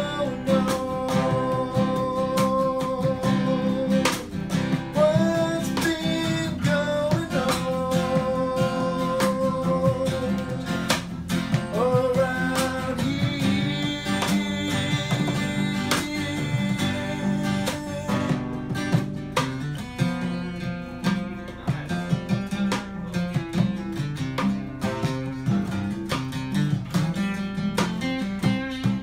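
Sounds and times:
acoustic guitars playing: 0.0 - 29.0.

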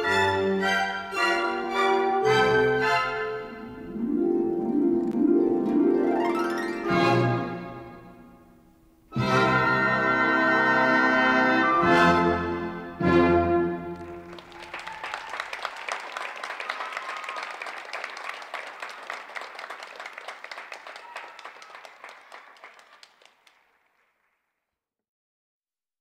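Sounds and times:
orchestral music: 0.0 - 14.6
audience applauding: 13.9 - 24.3.

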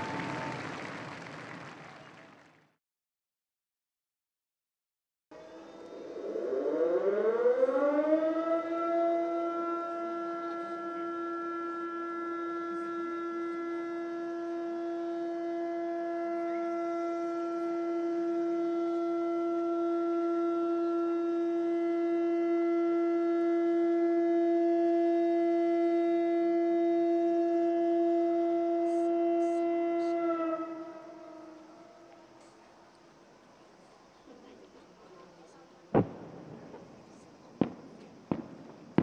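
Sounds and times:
warning siren: 0.0 - 1.4, 5.3 - 33.5.

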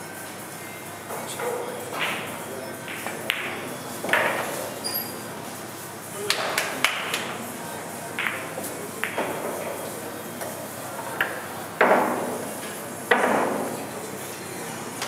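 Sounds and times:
pool balls clacking: 1.1 - 4.8, 6.2 - 13.9.

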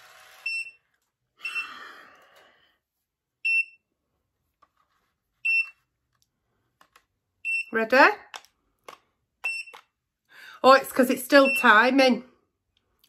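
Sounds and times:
hair curler beeping: 0.0 - 1.7, 9.4 - 9.9, 11.4 - 11.9.

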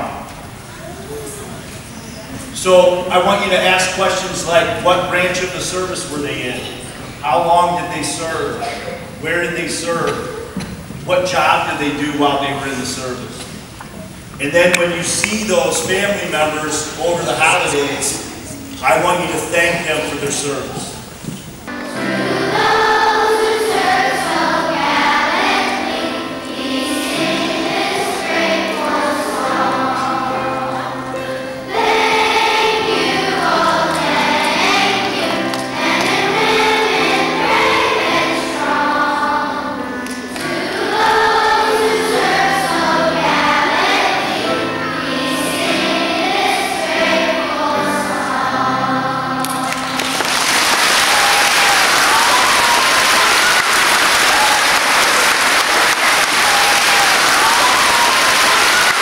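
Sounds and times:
children's choir singing: 0.0 - 59.0
applause: 49.6 - 59.0.

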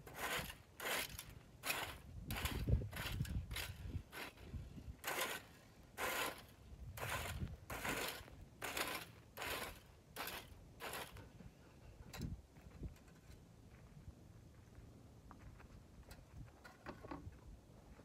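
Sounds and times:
rake scraping dry grass: 0.0 - 11.5.

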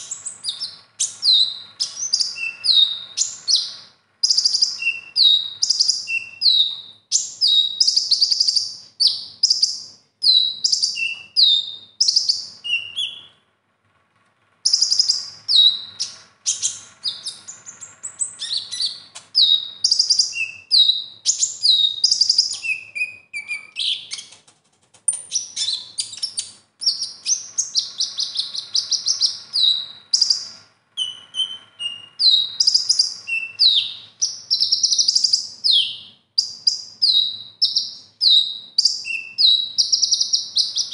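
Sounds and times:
bird singing chirps and whistles: 0.0 - 13.4, 14.6 - 24.4, 25.1 - 40.9.

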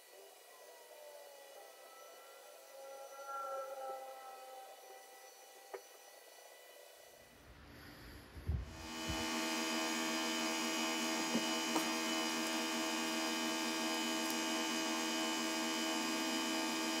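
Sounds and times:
steady electric hum: 7.2 - 17.0.

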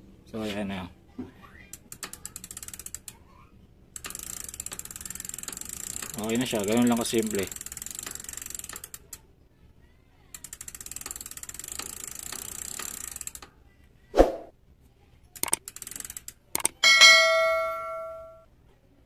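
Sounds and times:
bicycle freewheel ticking: 1.4 - 9.2, 10.3 - 13.5, 15.4 - 18.1
sharp clicks: 15.4 - 16.8
notification bell chime: 16.8 - 18.4.

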